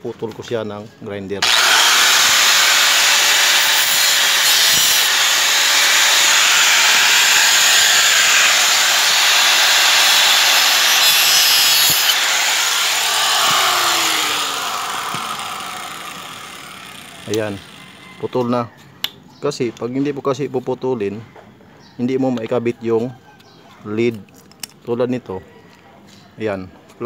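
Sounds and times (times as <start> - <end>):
angle grinder cutting plastic: 1.4 - 18.3
grinder motor whine: 1.4 - 18.3.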